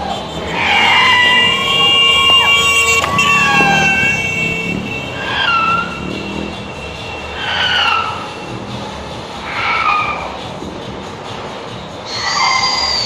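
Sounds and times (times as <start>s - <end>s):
horn blasts: 0.0s - 8.8s
low rumble of passing vehicles: 0.0s - 13.0s.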